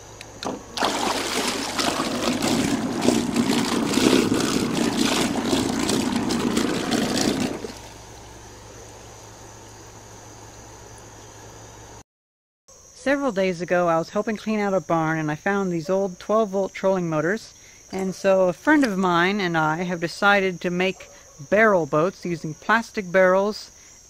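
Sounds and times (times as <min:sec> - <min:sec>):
electric motor propellers churning water: 0:00.4 - 0:08.4.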